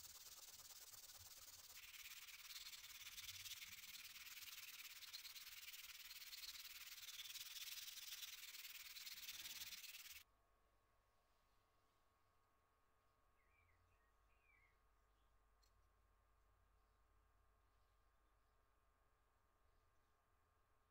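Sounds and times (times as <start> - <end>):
sandpaper scratching on metal: 0.0 - 10.2.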